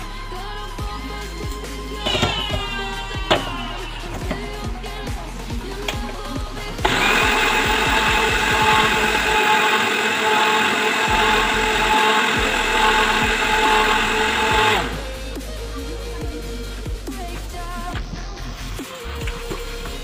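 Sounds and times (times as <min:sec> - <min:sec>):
background music with a beat: 0:00.0 - 0:20.0
blender motor running: 0:01.9 - 0:04.8, 0:05.5 - 0:15.4.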